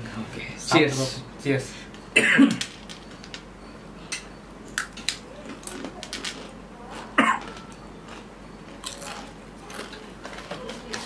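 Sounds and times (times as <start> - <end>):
person coughing: 2.2 - 2.6, 7.2 - 7.5
chip crunching while chewed: 5.5 - 11.0.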